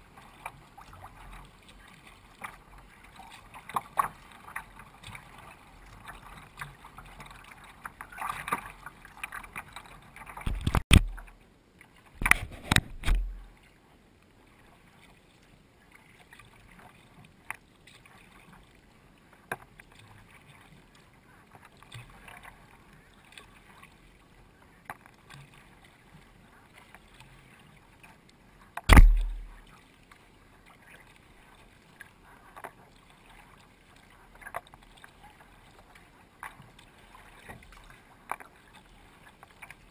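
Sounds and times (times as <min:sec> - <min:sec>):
water splashing along kayak hull: 0:00.0 - 0:39.9
loud sudden thumps: 0:28.9 - 0:29.6.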